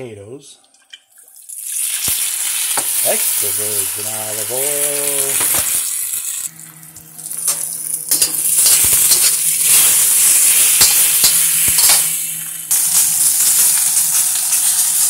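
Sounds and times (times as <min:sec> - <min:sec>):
food sizzling in oil: 0:01.4 - 0:15.0
steady low hum: 0:06.4 - 0:14.7.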